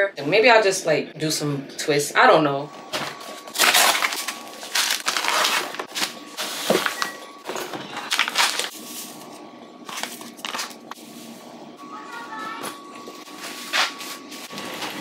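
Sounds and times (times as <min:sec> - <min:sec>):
plastic pack crinkling: 0:03.5 - 0:07.1, 0:08.0 - 0:09.1.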